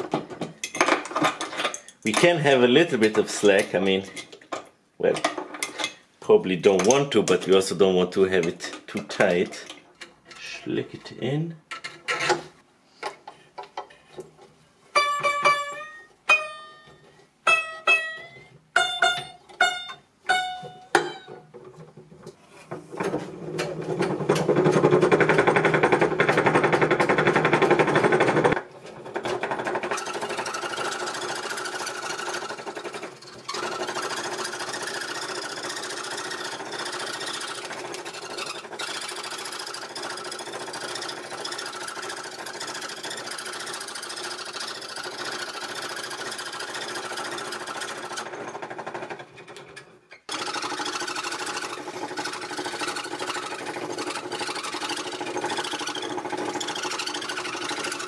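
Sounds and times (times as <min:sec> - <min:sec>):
saw blade plucked ringing: 0:15.0 - 0:21.4
scroll saw rattling cutting wood: 0:18.8 - 0:58.0.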